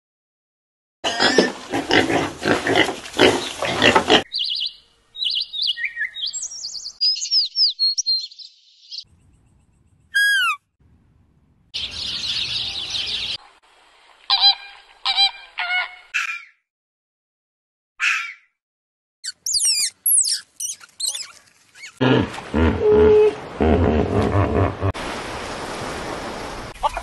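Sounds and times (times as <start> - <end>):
pigs grunting: 1.0 - 4.3, 21.9 - 24.9
small birds chirping: 4.3 - 10.6, 11.8 - 13.4, 19.2 - 22.0
high call falling in pitch: 10.2 - 10.6
flamingos honking: 14.3 - 16.2.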